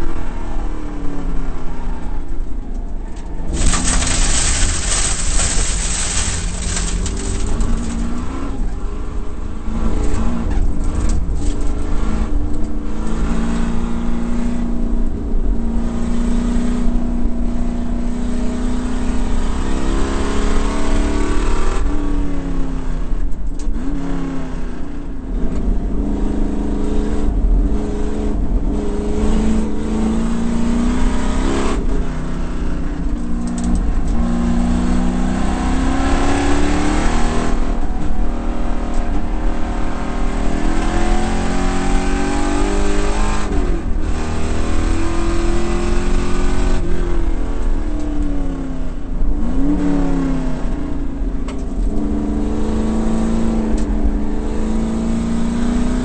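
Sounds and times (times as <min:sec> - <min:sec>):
loud rushing noise: 0:03.4 - 0:08.4
race car engine revving: 0:03.4 - 0:14.7, 0:26.4 - 0:48.6.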